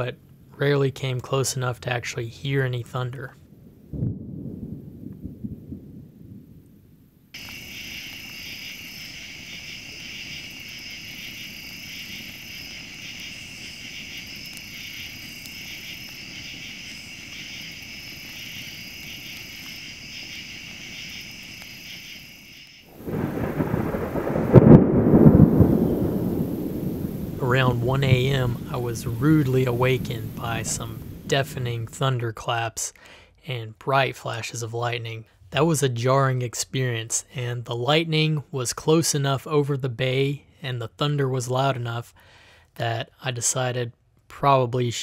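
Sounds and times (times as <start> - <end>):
thunder rumbling: 3.4 - 21.3, 22.9 - 32.2
loud thunderclap: 3.6 - 8.4, 22.9 - 32.0
night insects singing: 7.4 - 31.8.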